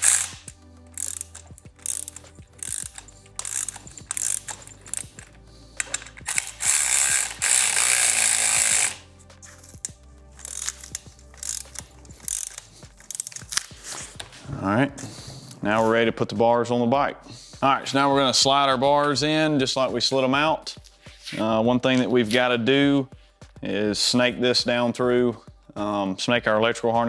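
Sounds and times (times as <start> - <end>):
ratchet wrench clicking: 0.0 - 14.0.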